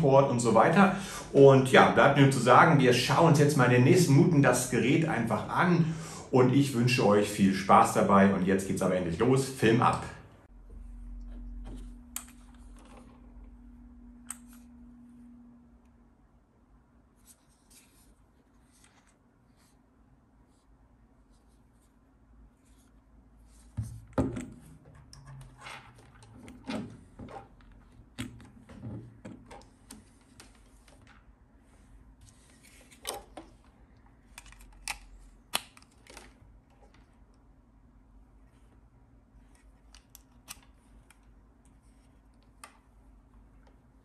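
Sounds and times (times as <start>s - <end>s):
steady low hum: 8.2s - 35.5s.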